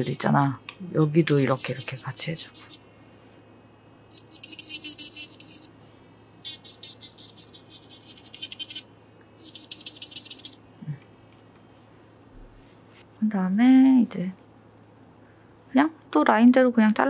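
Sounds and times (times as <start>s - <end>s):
electric nail drill grinding: 0.0s - 13.0s.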